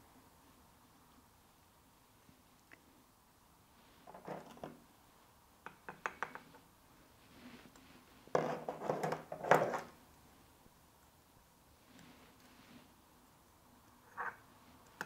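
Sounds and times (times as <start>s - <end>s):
knocking and scraping on ceramic pot: 8.3s - 9.8s.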